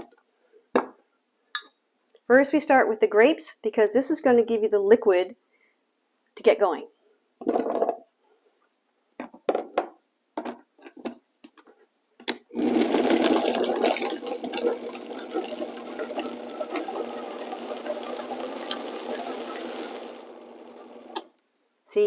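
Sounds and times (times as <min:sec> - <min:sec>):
blender motor blending: 0:12.6 - 0:21.2.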